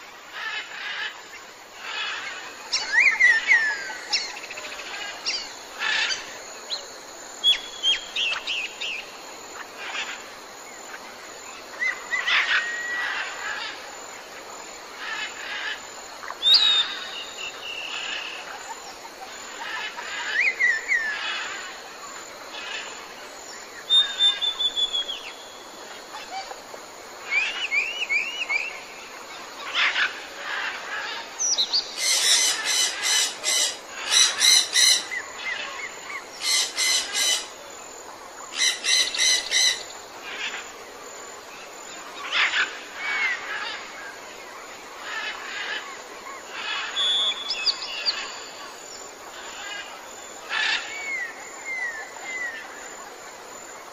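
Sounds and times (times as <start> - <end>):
steady background hiss: 0.0 - 53.9
birds chirping and whistling: 23.9 - 25.4, 46.9 - 48.6.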